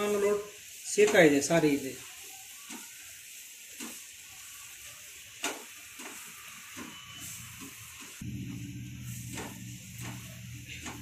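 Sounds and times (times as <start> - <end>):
masala sizzling in a pan: 0.0 - 11.0
low steady hum: 8.2 - 11.0.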